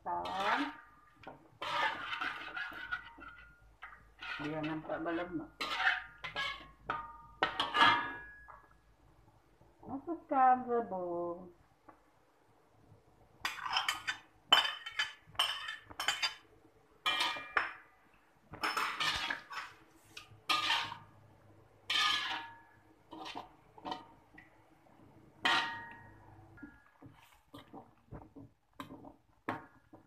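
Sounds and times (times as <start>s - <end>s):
metal ladle scraping a wok: 0.2s - 8.4s, 17.0s - 17.6s, 18.6s - 24.1s, 25.4s - 27.8s.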